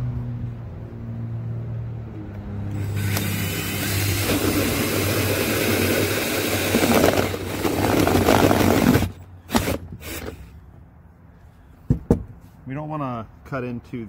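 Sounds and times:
drill motor hum: 0:02.7 - 0:10.5.

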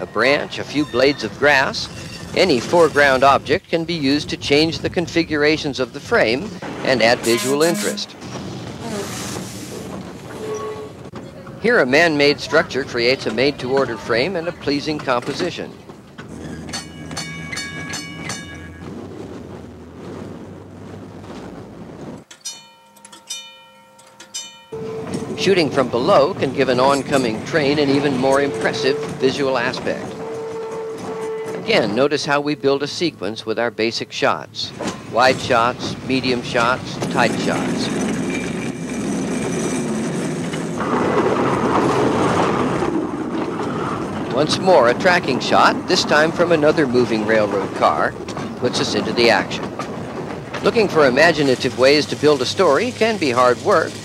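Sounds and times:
trolley car rumbling on track: 0:00.0 - 0:22.8, 0:24.4 - 0:54.0
trolley bell ringing: 0:07.3 - 0:08.2, 0:16.7 - 0:19.1, 0:22.3 - 0:29.7.

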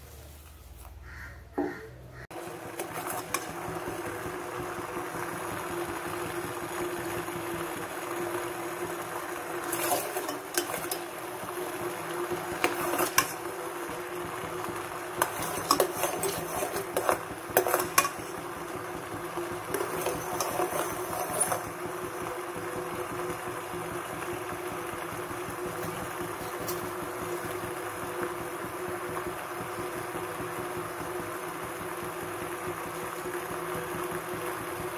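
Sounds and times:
steady hum: 0:01.5 - 0:34.1
spoon scraping a steel pan: 0:02.8 - 0:03.5, 0:09.6 - 0:11.1, 0:12.6 - 0:13.4, 0:15.2 - 0:18.4, 0:19.7 - 0:21.7.

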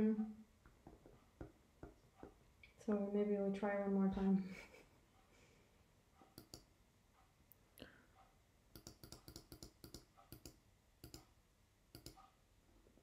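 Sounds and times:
computer mouse clicking: 0:06.3 - 0:06.7, 0:08.7 - 0:11.3, 0:11.9 - 0:12.4.

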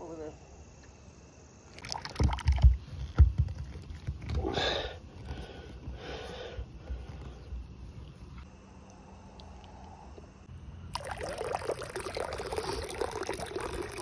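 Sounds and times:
dull knocks and thumps: 0:02.2 - 0:04.5.

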